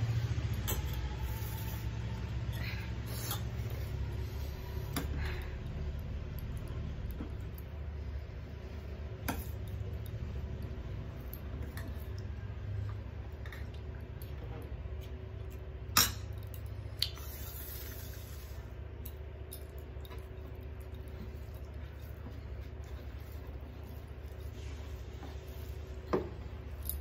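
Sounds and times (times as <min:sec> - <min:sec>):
food squishing: 0:08.4 - 0:26.8.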